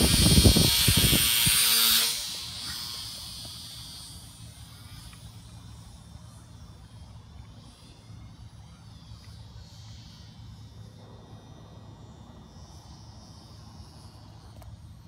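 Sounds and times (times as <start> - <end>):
model airplane motor whine: 0.0 - 10.6
steady low rumble: 0.0 - 15.0.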